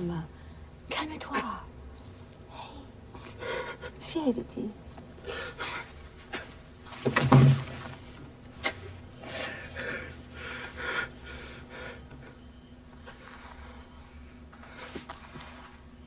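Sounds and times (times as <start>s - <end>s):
man breathing heavily: 9.2s - 12.3s.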